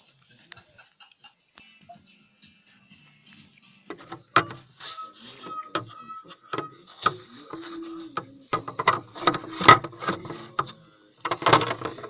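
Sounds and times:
plastic toy vehicle rattling: 8.6s - 12.0s.

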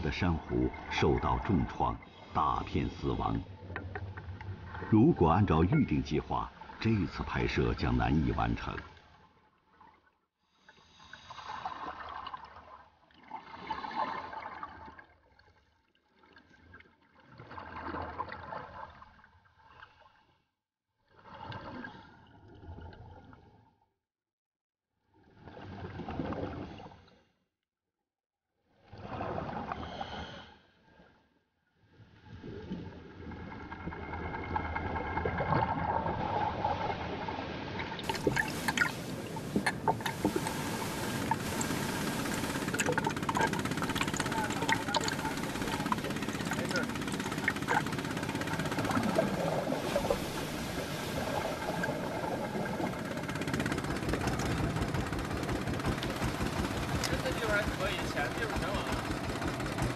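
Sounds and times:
water rushing: 0.0s - 8.8s, 33.6s - 59.9s
bubbles gurgling underwater: 37.8s - 54.6s.

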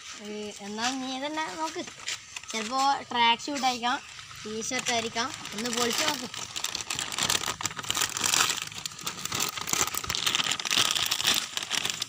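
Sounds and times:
gift wrapping crinkling and tearing: 3.6s - 12.0s.

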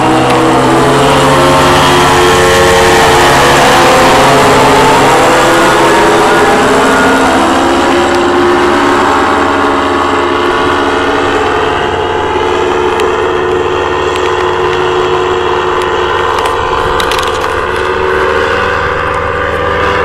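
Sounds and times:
paramotor engine and propeller: 0.0s - 20.0s.

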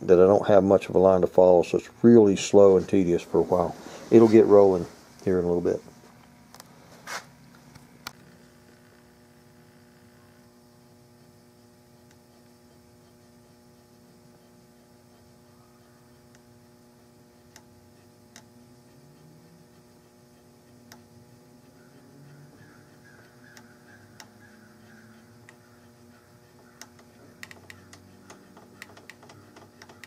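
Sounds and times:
steady electrical hum: 0.0s - 30.0s.

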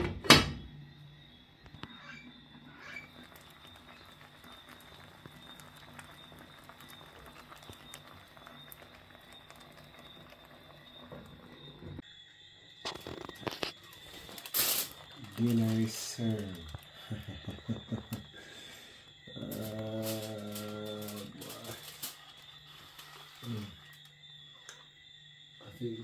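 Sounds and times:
steaming pot hiss and hum: 0.3s - 26.0s
aluminium foil crinkling: 3.0s - 11.1s, 12.9s - 17.8s, 19.4s - 24.1s.

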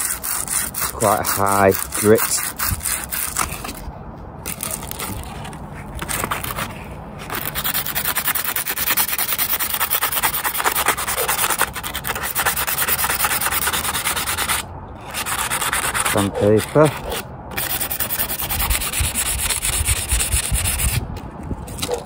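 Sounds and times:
sandpaper rubbing on metal: 0.0s - 3.8s, 7.3s - 21.0s.

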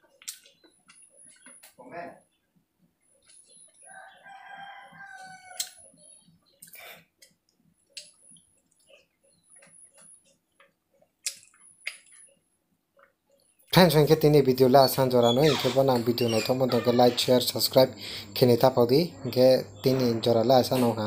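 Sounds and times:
rooster crowing: 3.9s - 5.8s.

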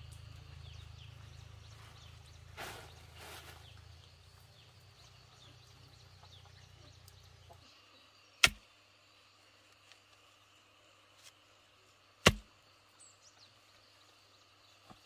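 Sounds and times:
low hum: 0.0s - 7.6s.

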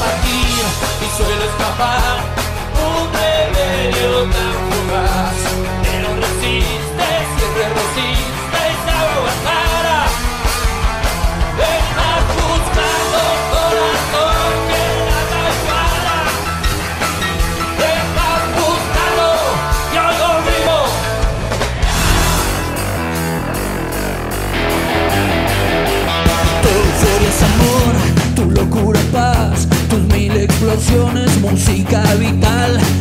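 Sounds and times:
rock song: 0.0s - 33.0s
steady drumbeat: 21.8s - 23.2s.

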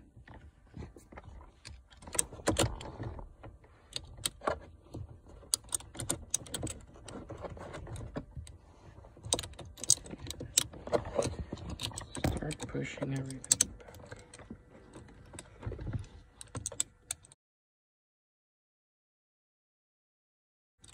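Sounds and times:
screw clicking against plastic: 5.4s - 8.2s, 9.3s - 12.6s.

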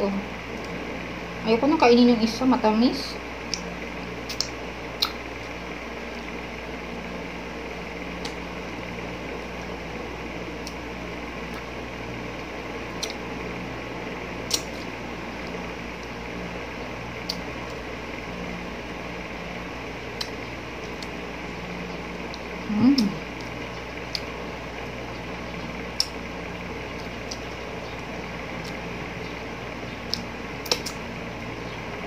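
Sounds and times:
steady hum: 0.0s - 32.0s
wet mouth eating sounds: 30.1s - 31.0s.

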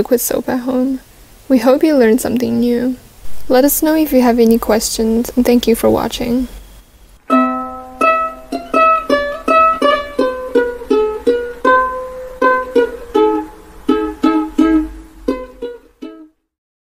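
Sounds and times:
plucked strings melody: 7.3s - 16.3s.

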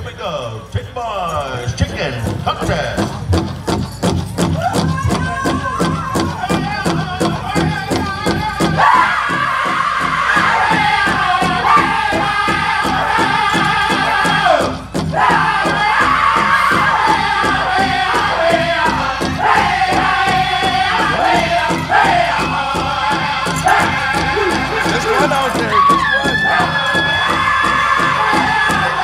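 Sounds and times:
big drum fast steady beat: 1.6s - 29.0s
high-pitched group singing: 4.8s - 29.0s.

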